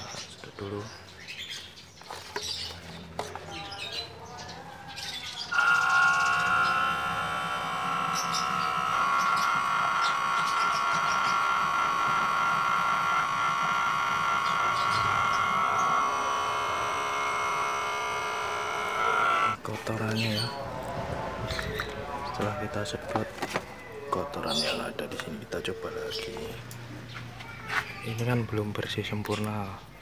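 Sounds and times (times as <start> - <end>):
electric pump motor whining: 5.5 - 29.0.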